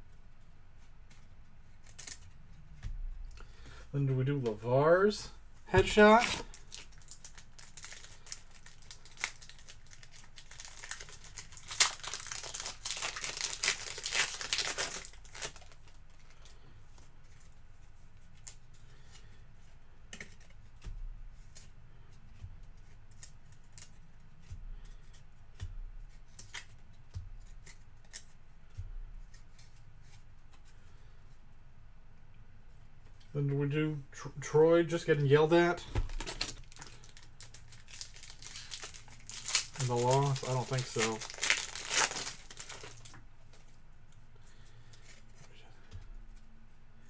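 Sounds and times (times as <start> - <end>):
wrapper crinkling and tearing: 5.7 - 16.5, 35.9 - 43.6.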